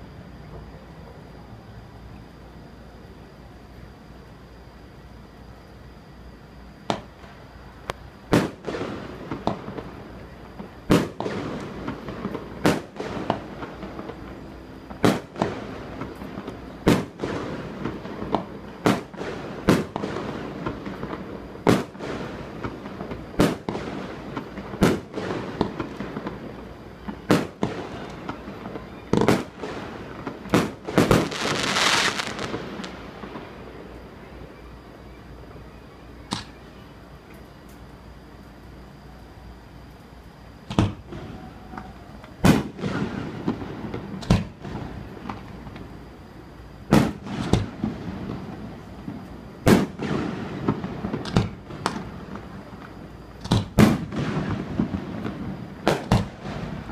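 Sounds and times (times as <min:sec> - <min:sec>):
fireworks crackling: 0:06.8 - 0:34.6, 0:40.6 - 0:56.9
fireworks bangs: 0:08.3 - 0:33.8, 0:40.6 - 0:45.9, 0:46.9 - 0:56.9.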